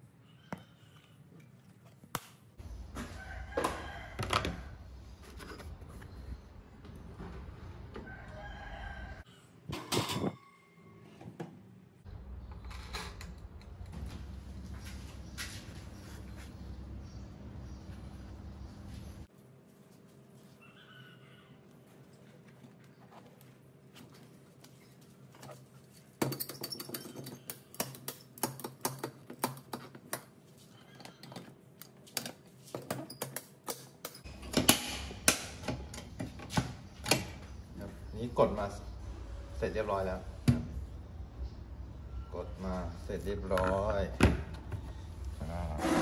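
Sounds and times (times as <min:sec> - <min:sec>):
rooster crowing: 0:03.0 - 0:04.8, 0:08.0 - 0:09.5, 0:10.3 - 0:11.2.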